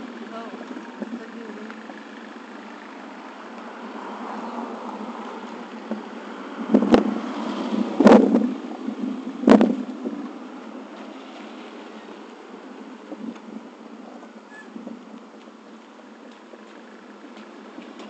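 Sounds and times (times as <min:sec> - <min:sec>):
road traffic passing: 0:00.0 - 0:18.0
wind buffeting microphone: 0:04.0 - 0:18.0.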